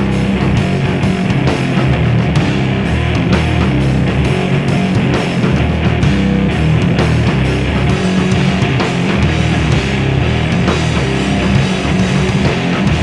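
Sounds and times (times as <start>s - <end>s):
drum kit with cymbals: 0.0s - 13.0s
rock band playing live: 0.0s - 13.0s.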